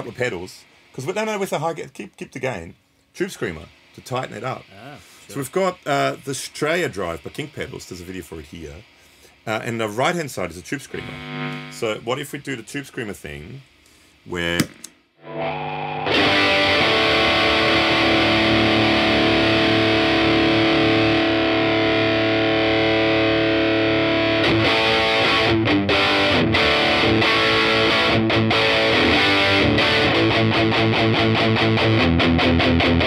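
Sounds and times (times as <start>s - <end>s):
overdriven electric guitar chords: 11.0s - 11.9s, 15.2s - 33.0s.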